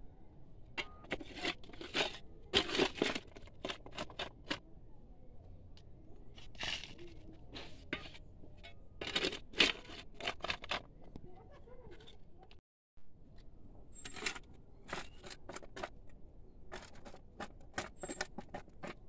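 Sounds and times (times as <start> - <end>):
tool digging in stony earth: 0.8 - 4.6, 6.3 - 11.0.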